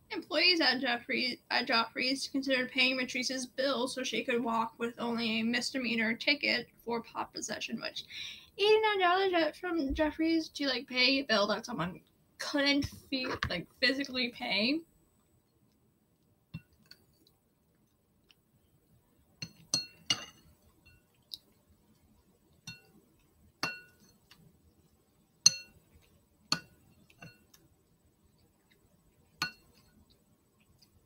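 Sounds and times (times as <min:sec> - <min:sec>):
utensil clinking against a dish: 0:19.4 - 0:21.0, 0:23.6 - 0:24.2, 0:29.4 - 0:29.8.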